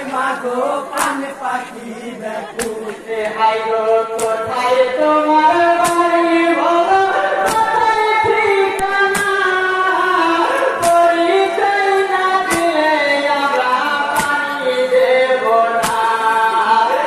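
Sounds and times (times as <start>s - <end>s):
sharp rhythmic beat: 0.0s - 6.8s, 7.4s - 15.0s
men singing a lament: 0.0s - 17.0s.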